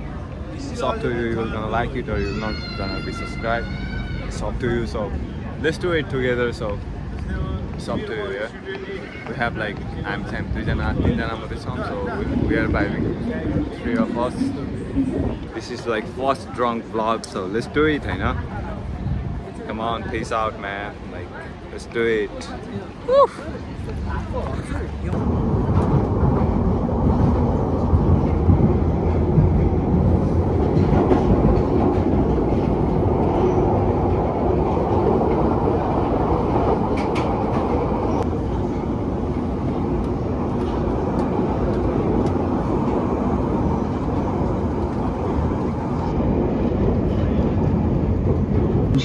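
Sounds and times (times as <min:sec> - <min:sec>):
train wheels rumbling on track: 0:00.0 - 0:23.0, 0:23.6 - 0:49.0
clicks of train on track: 0:27.1 - 0:34.2, 0:36.6 - 0:43.0.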